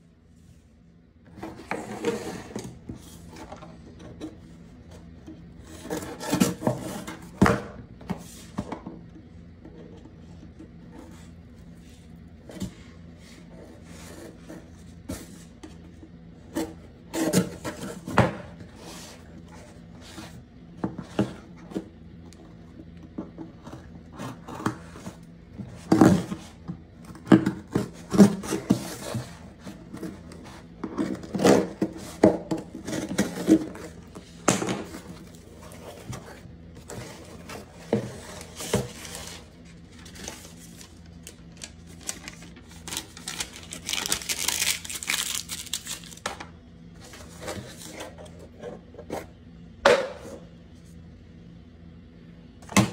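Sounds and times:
paper packing rustling: 0:27.7 - 0:46.4.

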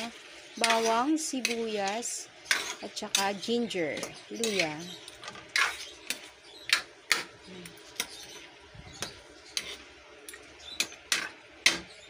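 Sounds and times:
spatula knocking and scraping pan: 0:00.6 - 0:01.8, 0:02.4 - 0:08.2.

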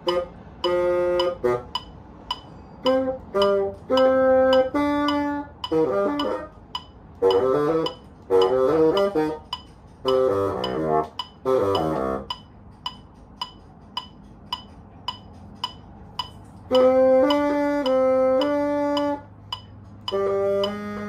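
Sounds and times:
bassoon playing: 0:00.0 - 0:12.5, 0:16.7 - 0:21.0
steady metronome click: 0:00.0 - 0:21.0.

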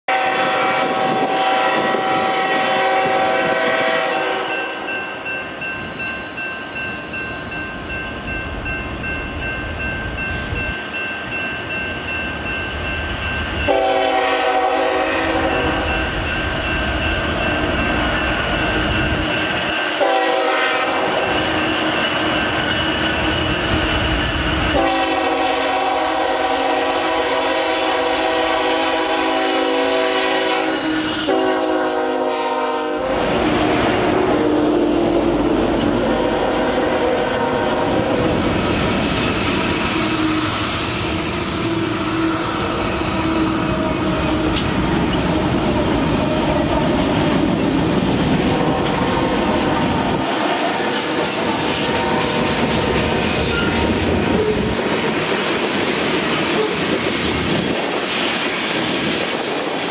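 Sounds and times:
train horn blasts: 0:00.1 - 0:05.0, 0:13.6 - 0:16.0, 0:19.9 - 0:21.8, 0:24.6 - 0:38.4, 0:39.7 - 0:44.7
engine and rail rumble: 0:00.1 - 0:59.9
crossing signal bell ringing: 0:04.1 - 0:14.7, 0:15.3 - 0:24.8.

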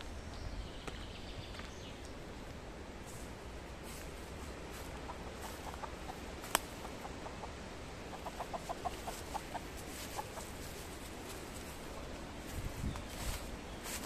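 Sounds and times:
hen clucking: 0:04.7 - 0:12.2.

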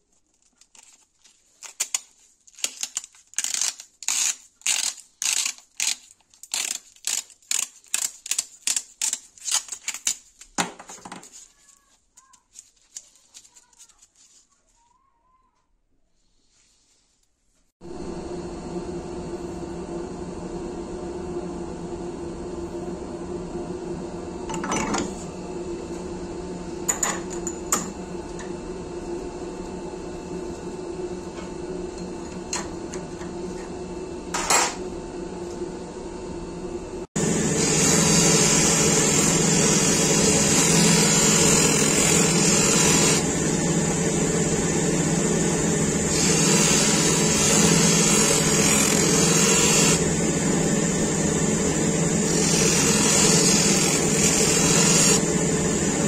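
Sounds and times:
steady hum: 0:17.8 - 0:56.0
bench grinder grinding blade: 0:24.4 - 0:35.8, 0:36.6 - 0:56.0.

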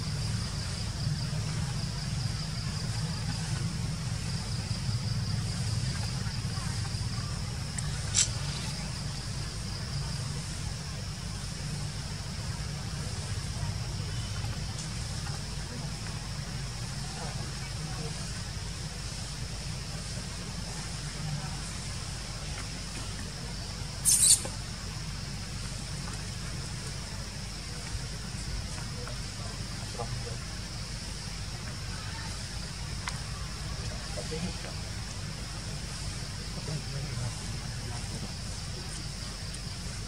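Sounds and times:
high-pitched insect hum: 0:00.0 - 0:40.0
infant monkey squeaking: 0:24.0 - 0:24.5
sharp click: 0:24.0 - 0:24.6.

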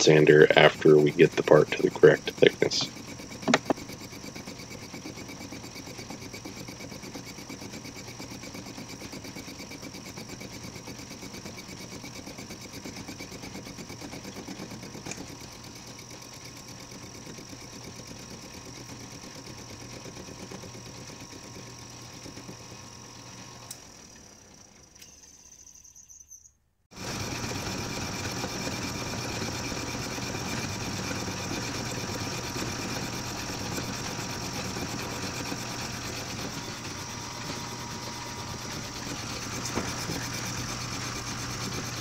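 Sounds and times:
metal lathe mechanical clatter: 0:00.0 - 0:24.3, 0:27.0 - 0:42.0.

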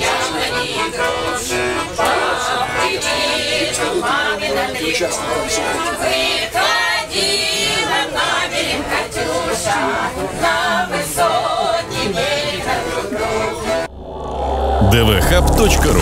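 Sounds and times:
button accordion: 0:00.0 - 0:05.8.

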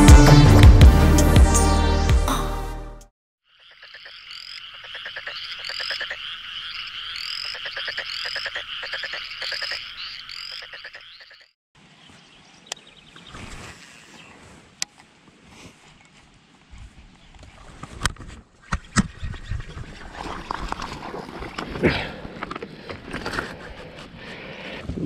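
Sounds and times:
music: 0:00.0 - 0:03.1
frogs croaking: 0:03.4 - 0:11.6.

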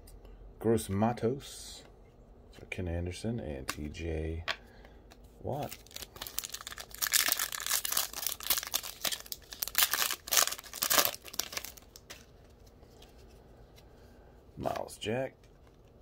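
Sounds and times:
foil wrapper crinkling and tearing: 0:05.5 - 0:12.3.

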